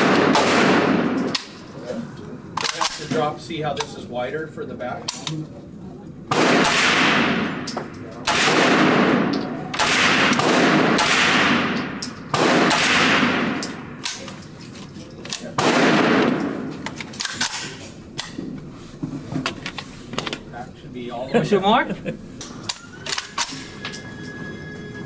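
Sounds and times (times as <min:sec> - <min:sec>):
gunshots ringing indoors: 0:00.0 - 0:01.6, 0:06.3 - 0:14.4, 0:15.5 - 0:18.3.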